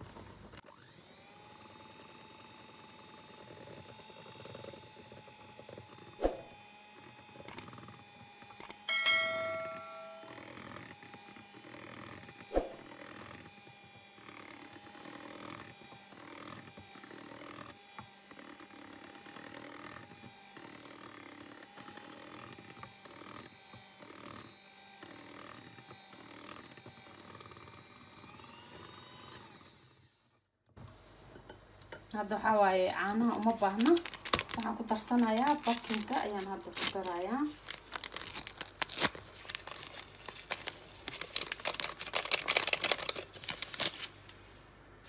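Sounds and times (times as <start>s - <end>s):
electric hand mixer whine: 0.0s - 30.3s
short ringing tone: 8.9s - 10.6s.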